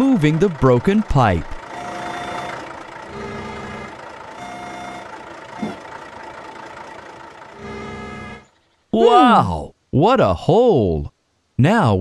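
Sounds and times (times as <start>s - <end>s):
cartoon machine engine running: 0.0s - 8.5s
held beeping tone: 1.7s - 5.8s.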